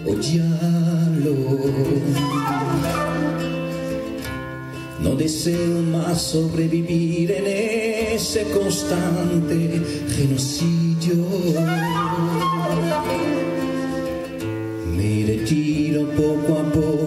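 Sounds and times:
acoustic guitar: 0.0s - 17.0s
flute melody: 2.0s - 4.2s, 11.4s - 14.6s.

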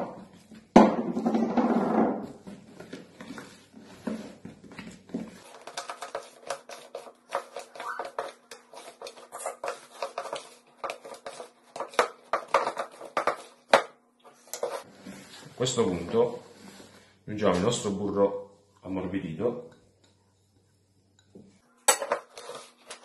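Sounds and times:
hands mixing dough in glass bowl: 2.4s - 17.0s.

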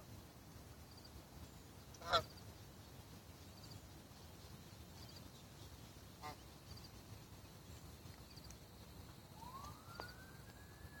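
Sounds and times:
distant siren rising in pitch: 9.3s - 11.0s.

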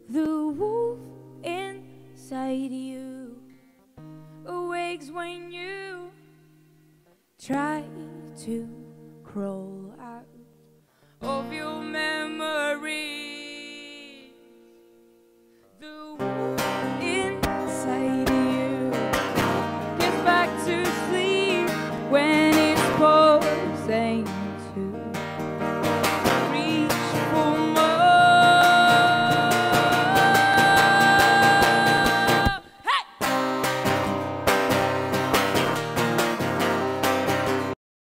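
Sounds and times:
woman singing: 0.0s - 3.5s, 4.4s - 6.4s, 7.4s - 10.5s, 11.2s - 14.7s, 15.7s - 25.3s, 26.1s - 33.4s
acoustic guitar strumming: 16.2s - 37.8s.

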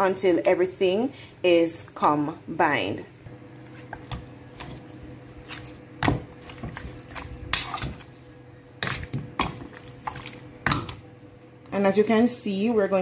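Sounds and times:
fork scraping meat in bowl: 3.6s - 10.5s.

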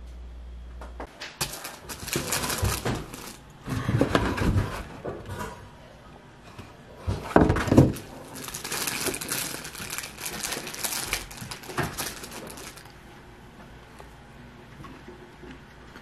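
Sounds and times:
wrapping crinkling: 1.4s - 3.4s, 7.5s - 13.0s.

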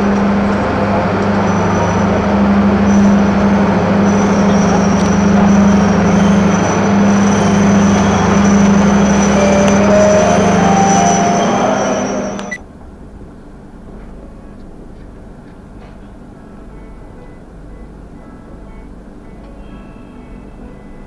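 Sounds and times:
low hum: 0.0s - 12.6s
train wheels rumbling: 0.0s - 13.0s
faint high squeal: 1.4s - 12.6s.

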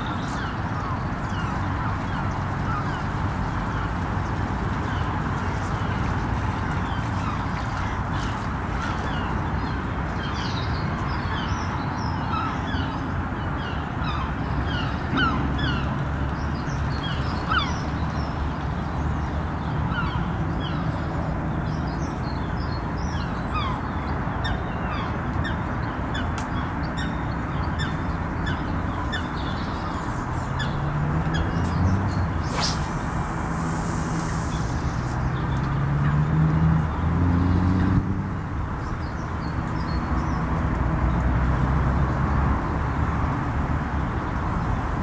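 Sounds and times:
wind on microphone: 28.8s - 35.9s.

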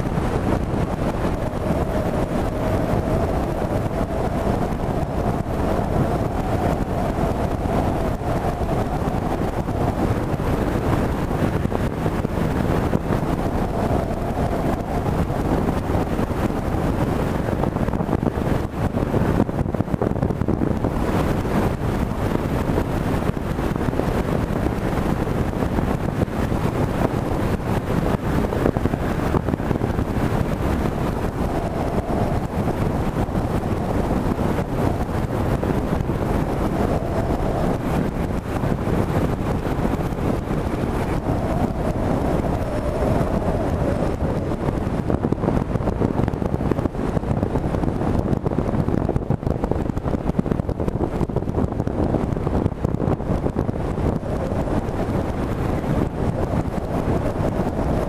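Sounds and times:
outboard motor droning: 0.0s - 58.0s
wind buffeting microphone: 0.0s - 58.0s.

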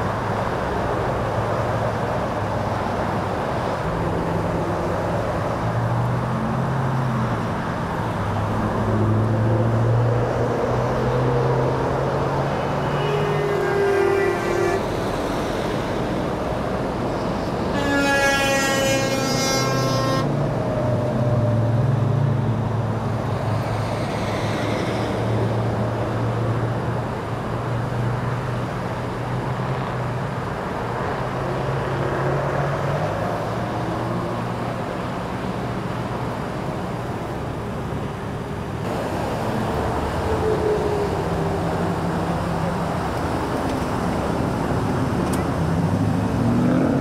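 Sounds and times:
freeway traffic passing: 0.0s - 47.0s
vehicle horn: 12.6s - 15.0s, 17.7s - 20.4s.

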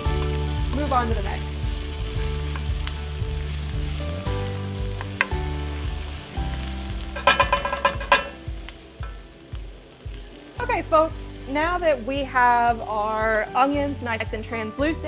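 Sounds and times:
vegetables sizzling in butter: 0.0s - 15.0s
metal spoon scraping a pan: 7.2s - 8.4s.

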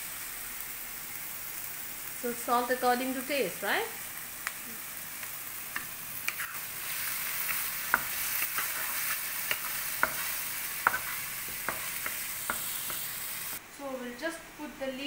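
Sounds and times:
vegetables sizzling in oil: 0.0s - 13.6s
wooden spatula scraping a pan: 6.3s - 13.1s.

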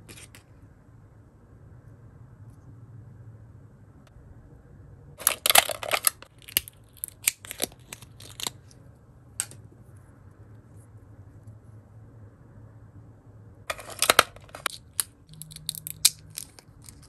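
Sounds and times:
plastic doll accessories clicking: 5.2s - 8.6s, 13.7s - 17.0s.

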